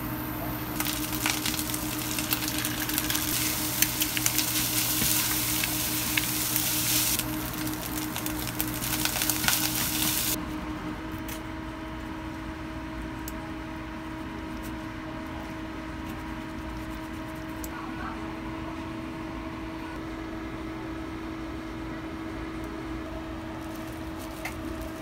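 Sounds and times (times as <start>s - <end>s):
low hum: 0.0s - 11.1s
food sizzling in frying pans: 0.8s - 10.4s.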